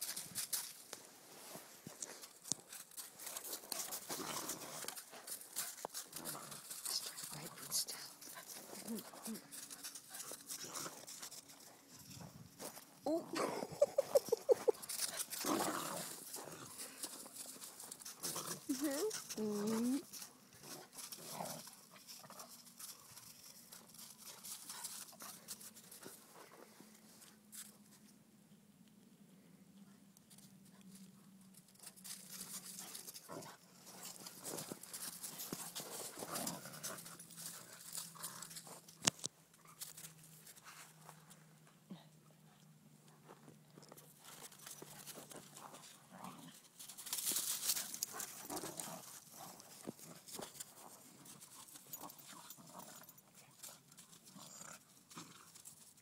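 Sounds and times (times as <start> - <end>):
faint dog noises: 6.1 - 15.4, 18.2 - 20.9
dogs scuffling: 31.7 - 41.3, 46.8 - 54.3.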